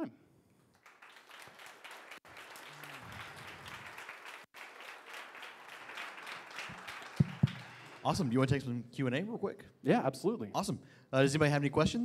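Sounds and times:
audience applauding: 0.7 - 8.6.

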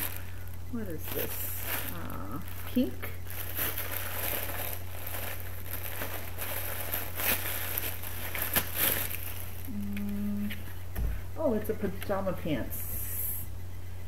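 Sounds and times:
tissue paper crinkling: 0.0 - 9.8.

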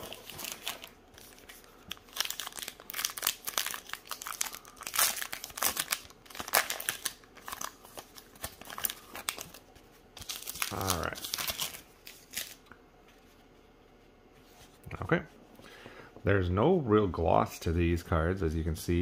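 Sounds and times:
wrapper crinkling and tearing: 0.0 - 12.7.

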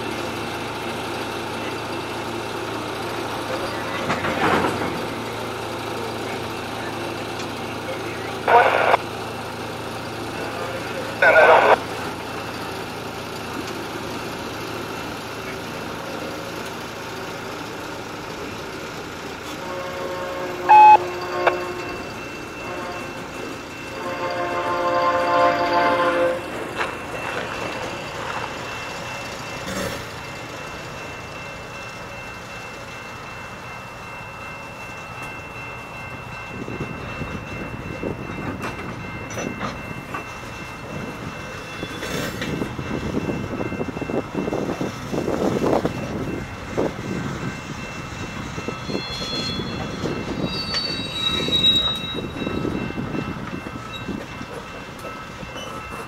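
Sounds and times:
train wheels clattering over rail joints: 2.7 - 7.6, 37.4 - 43.6
train horn: 19.5 - 23.2, 23.9 - 26.5
high wheel squeal: 48.4 - 52.8.

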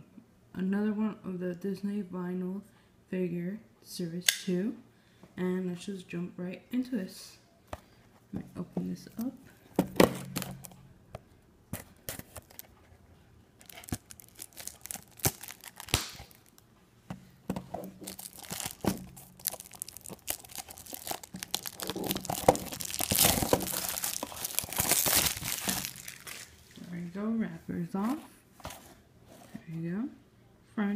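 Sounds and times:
plastic shrink wrap crinkling and tearing: 12.2 - 12.8, 13.6 - 16.6, 17.8 - 26.8.

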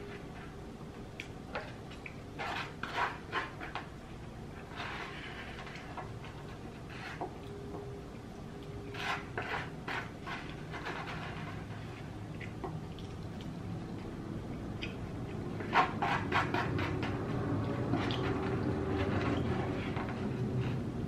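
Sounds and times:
faint steady whine: 0.0 - 15.6.

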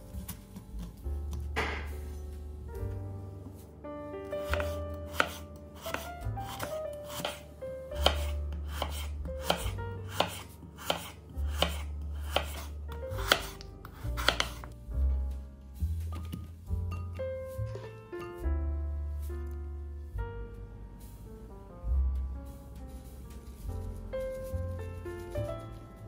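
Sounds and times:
background music with bass and piano: 0.0 - 26.0
knife slicing on wooden board: 4.4 - 14.7.

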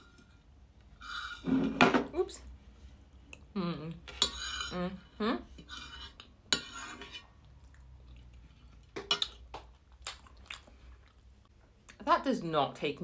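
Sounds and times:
person humming: 3.5 - 4.0.

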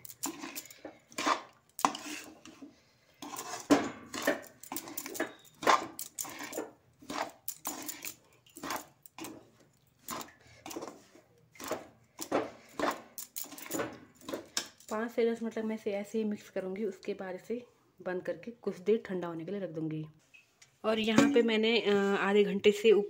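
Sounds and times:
metal spatula scraping a pan: 0.0 - 14.5.

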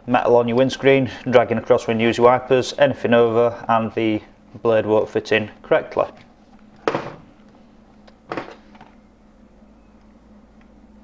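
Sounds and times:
knocks on steel workbench: 6.8 - 7.3.

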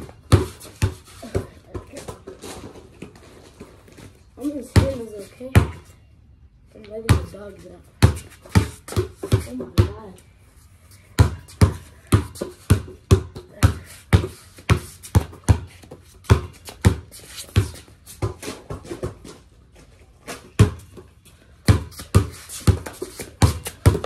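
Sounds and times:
basketball bouncing: 0.0 - 2.2, 4.7 - 5.8, 8.0 - 10.0, 11.2 - 19.3, 20.6 - 24.0.

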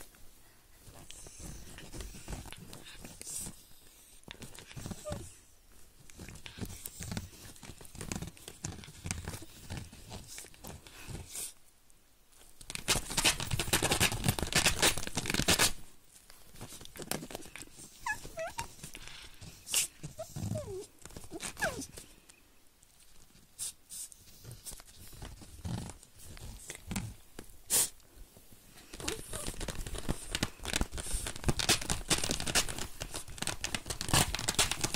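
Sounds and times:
rustling: 0.0 - 11.7, 12.3 - 34.9
puppy whining: 4.7 - 5.5, 17.6 - 22.1, 28.9 - 30.1
puppy growling: 20.0 - 21.9.

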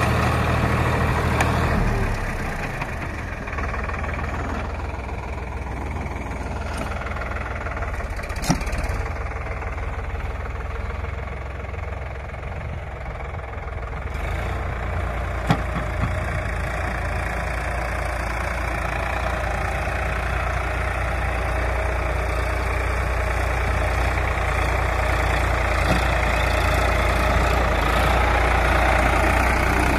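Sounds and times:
tractor diesel engine running: 0.0 - 29.9.

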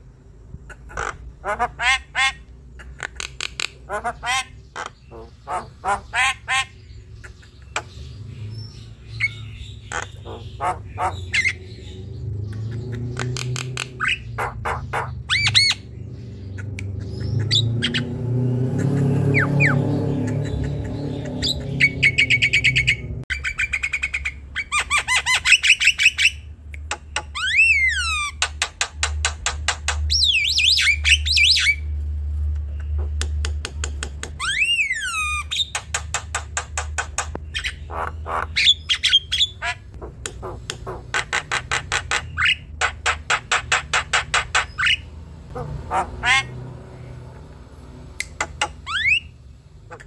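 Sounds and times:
bird squawks: 0.7 - 8.0, 9.1 - 15.9, 18.8 - 28.5, 37.4 - 46.6, 48.4 - 50.0.

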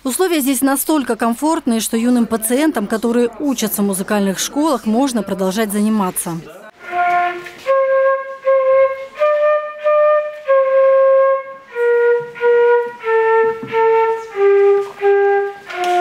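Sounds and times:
flute melody: 6.7 - 16.0.

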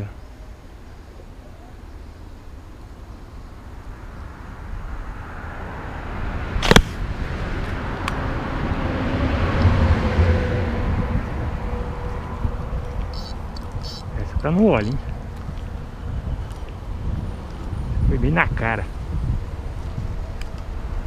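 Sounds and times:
rushing noise with low rumble: 2.4 - 21.0.

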